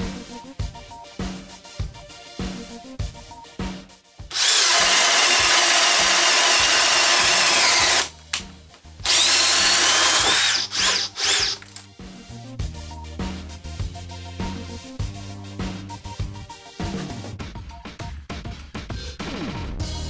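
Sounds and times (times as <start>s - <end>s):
drill motor whine: 4.3s - 8.1s, 9.0s - 11.7s.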